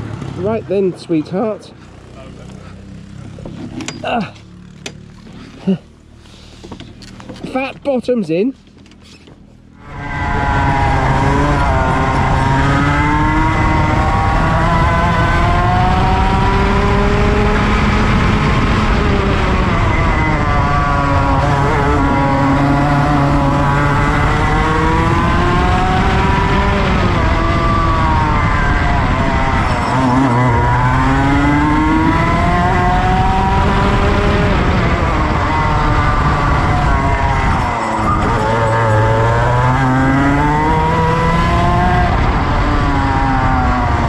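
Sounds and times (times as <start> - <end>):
go-kart engine revving: 9.8 - 44.0.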